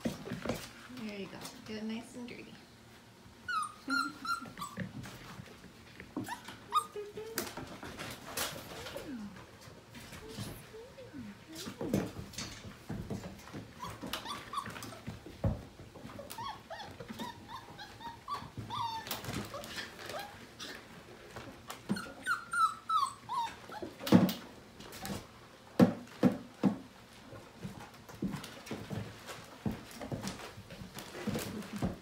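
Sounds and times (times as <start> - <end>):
puppies whining and yipping: 3.4 - 5.5, 6.1 - 9.3, 13.5 - 15.4, 16.0 - 20.9, 21.7 - 24.2.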